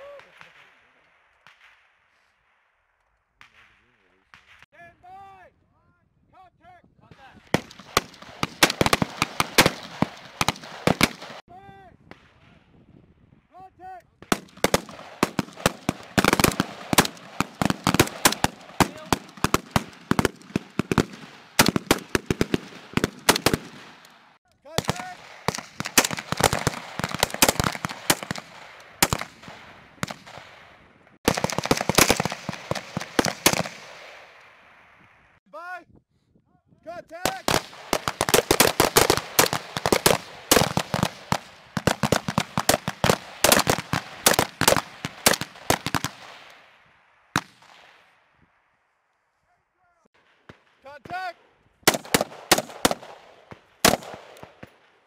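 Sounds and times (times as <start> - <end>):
rifle shots: 7.4 - 11.4, 14.2 - 34.8, 37.2 - 48.1, 51.8 - 55.0.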